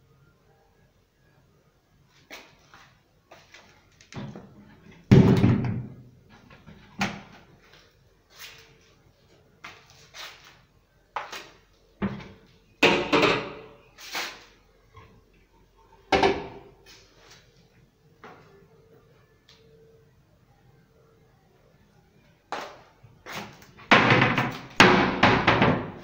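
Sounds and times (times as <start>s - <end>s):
cabinet doors knocking and banging: 5.1s - 6.0s, 12.0s - 13.7s, 16.1s - 16.6s, 23.9s - 26.0s.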